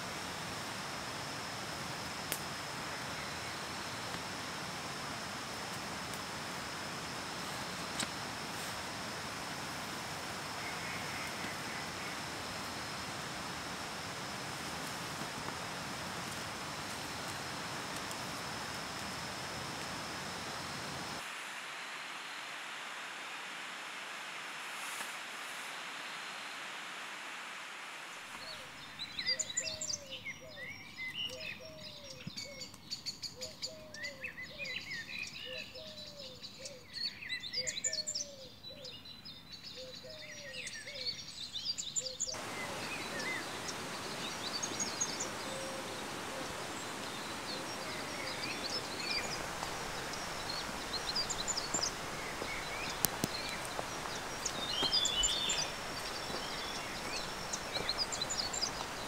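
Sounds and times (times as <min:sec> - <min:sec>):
steady outdoor hiss: 0:00.0 - 0:59.0
forest birds singing and chirping: 0:28.4 - 0:59.0.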